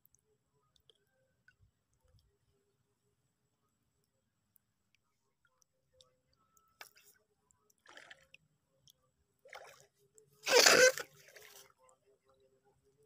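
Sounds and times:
faint ticks: 0.0s - 2.4s, 4.0s - 9.0s.

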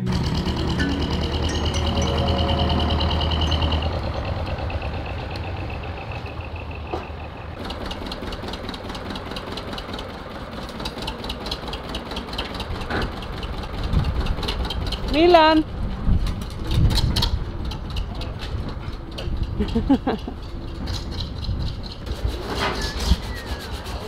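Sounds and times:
tractor engine running: 0.0s - 24.0s
rapid even clatter: 7.6s - 24.0s.

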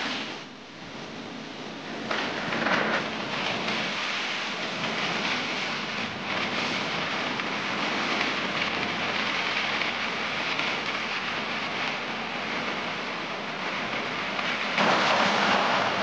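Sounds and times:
wind on microphone: 0.0s - 16.0s
road noise: 14.2s - 16.0s
wind rushing: 14.8s - 16.0s.

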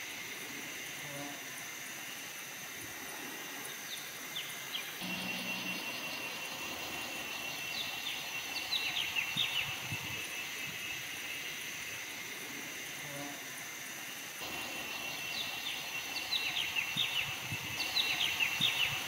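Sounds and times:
insects trilling: 0.0s - 19.0s
birds chirping: 3.7s - 11.6s, 14.4s - 19.0s.

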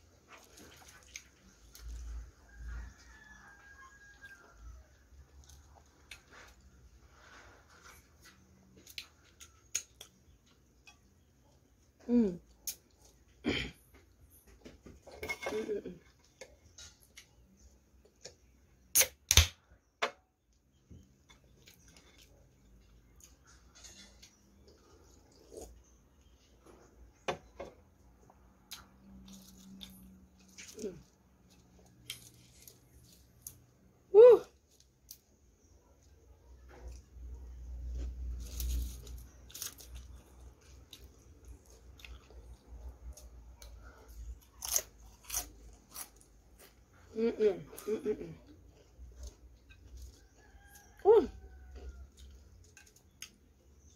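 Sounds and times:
crunching and chewing chips: 0.0s - 10.8s, 28.3s - 33.9s, 36.8s - 53.9s
loud sharp chewing crunches: 37.8s - 46.9s.

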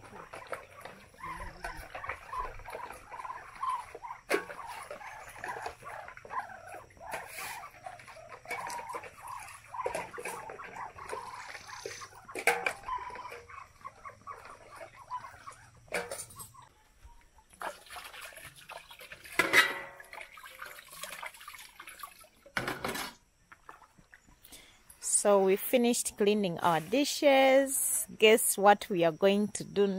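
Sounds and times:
water splashing and pouring: 0.0s - 13.3s, 17.6s - 23.0s
animal calls: 0.0s - 16.9s
metal bowls and pots clinking: 15.9s - 16.6s, 19.4s - 20.3s.

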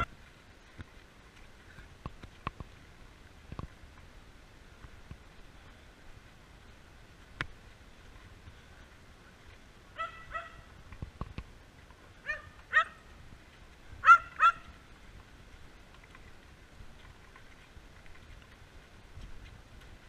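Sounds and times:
dog barking: 10.0s - 10.6s, 12.2s - 13.0s, 14.0s - 14.7s.

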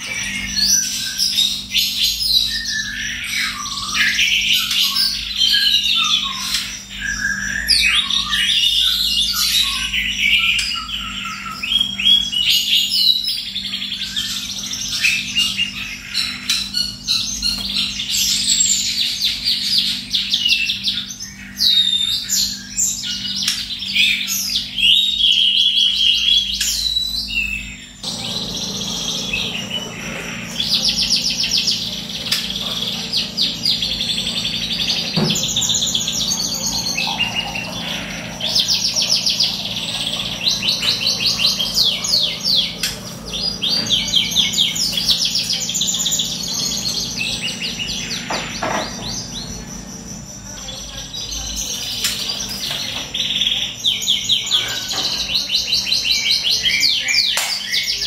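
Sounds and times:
songbird trilling song: 0.1s - 58.0s
steady low hum: 27.7s - 53.9s.

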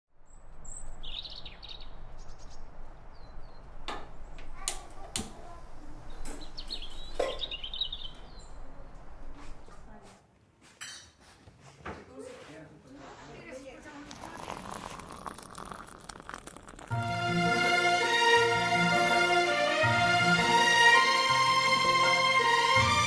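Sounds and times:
small birds chirping: 0.2s - 9.6s.

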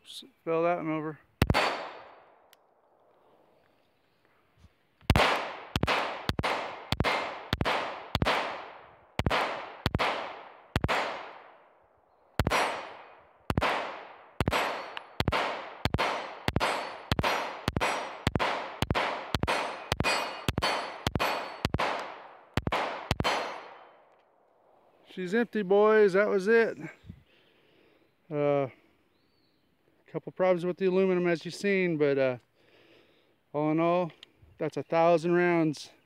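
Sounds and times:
pistol shots echoing: 1.4s - 3.0s, 5.1s - 24.1s.

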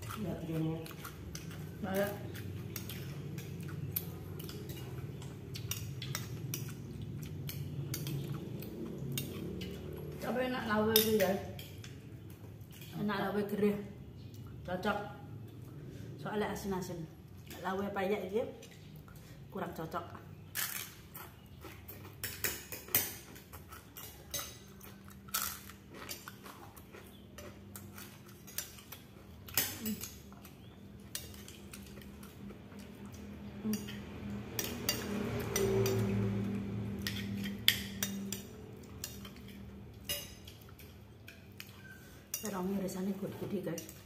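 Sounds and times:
spoons clinking on plates: 2.7s - 8.4s, 22.1s - 26.5s, 33.6s - 36.2s, 37.0s - 42.6s.

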